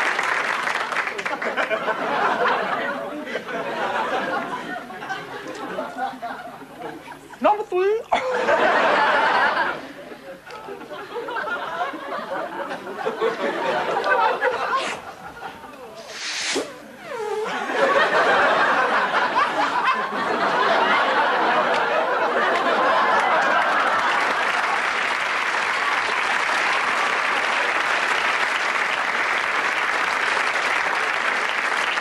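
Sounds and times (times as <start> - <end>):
audience applauding: 0.0 - 2.8, 17.4 - 32.0
audience laughter: 0.4 - 7.4, 8.1 - 16.1, 17.3 - 28.3.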